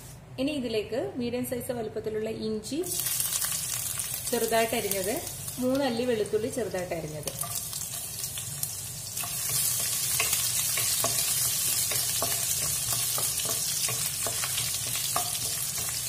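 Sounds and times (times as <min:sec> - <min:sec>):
garlic sizzling in hot oil: 0:02.8 - 0:16.0
spatula tapping and scraping pan: 0:09.2 - 0:16.0.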